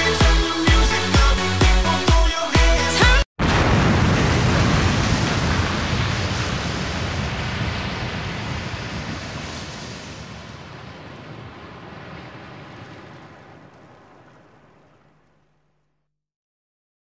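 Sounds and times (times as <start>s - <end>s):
loud rushing noise: 3.4s - 15.4s.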